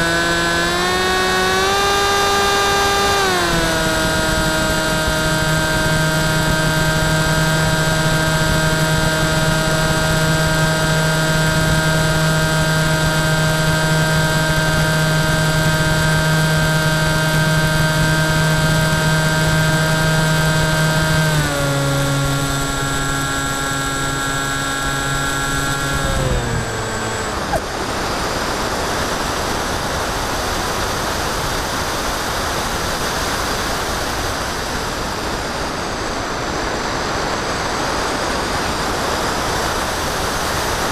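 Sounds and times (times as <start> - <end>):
electric motor and propeller whining: 0.0 - 30.4.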